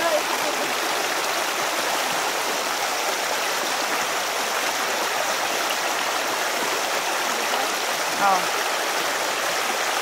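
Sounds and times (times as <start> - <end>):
stream water rushing over rocks: 0.0 - 10.0.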